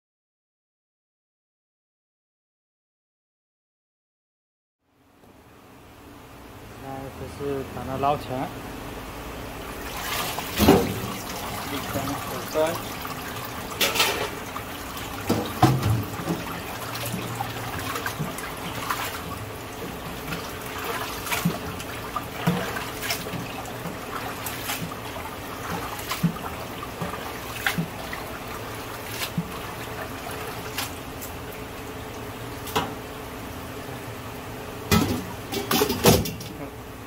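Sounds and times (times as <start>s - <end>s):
water sloshing in a sink: 9.6s - 33.0s.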